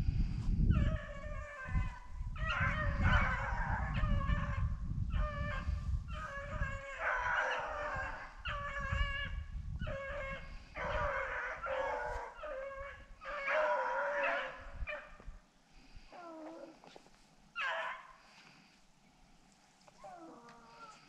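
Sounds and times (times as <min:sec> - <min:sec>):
hounds baying: 0:00.8 - 0:15.2.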